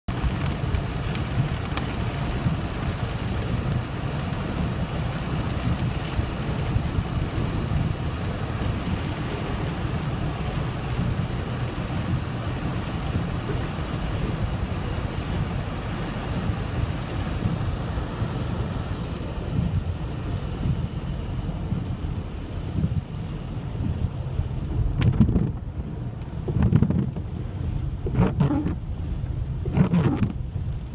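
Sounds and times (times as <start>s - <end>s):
car and tyres rumbling: 0.0s - 30.9s
hail ticks: 0.1s - 3.1s
heavy rain on car roof: 0.1s - 30.9s.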